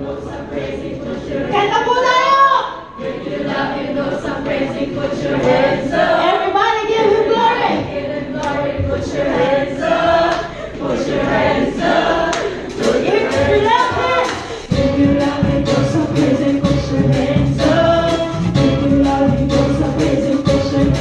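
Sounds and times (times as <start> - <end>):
congregation singing: 0.0 - 21.0.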